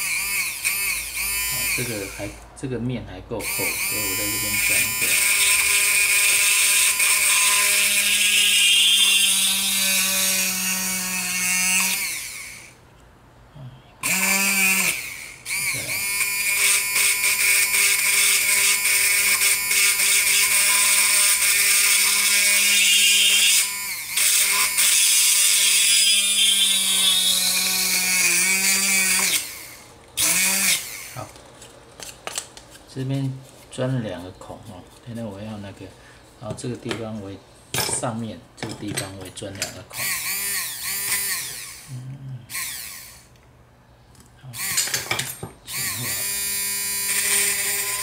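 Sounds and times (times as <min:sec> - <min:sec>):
electric drill whining through wood: 0:00.0 - 0:02.4, 0:03.4 - 0:12.8, 0:14.0 - 0:31.2, 0:40.0 - 0:41.9, 0:42.5 - 0:43.3, 0:45.7 - 0:48.0.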